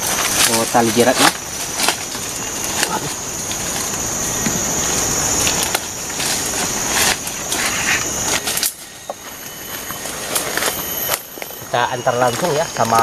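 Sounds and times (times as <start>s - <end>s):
high insect drone: 0.0s - 13.0s
leaves and twigs rustling: 0.0s - 13.0s
sharp twig cracks: 7.0s - 8.8s.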